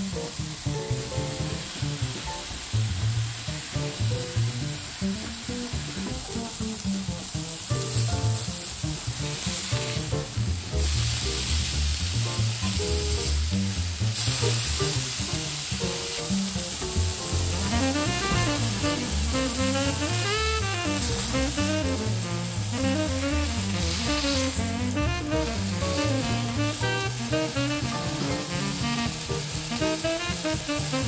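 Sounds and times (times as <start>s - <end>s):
background music with bass line: 0.0s - 31.0s
burger patties sizzling in skillet: 0.0s - 31.0s.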